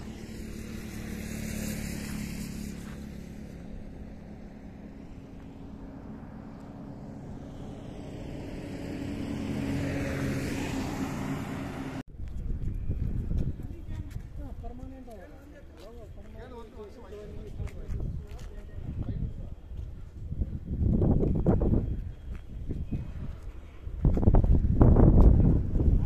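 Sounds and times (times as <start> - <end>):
vehicle passing: 0.0 - 12.0
bus approaching: 0.0 - 12.1
highway traffic engine hum: 0.0 - 26.0.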